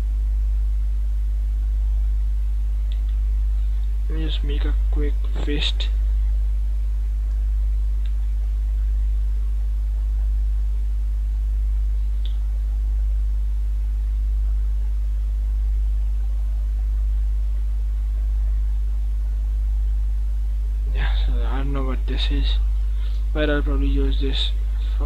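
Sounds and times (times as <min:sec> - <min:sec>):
low electrical hum: 0:00.0 - 0:25.0
faint clicks: 0:02.8 - 0:03.2, 0:08.0 - 0:08.3, 0:12.2 - 0:12.4.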